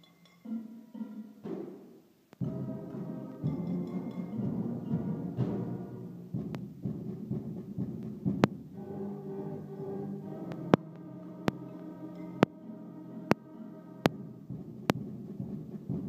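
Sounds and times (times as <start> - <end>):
pots and utensils percussion: 0.0 - 5.8
school band music: 0.0 - 16.0.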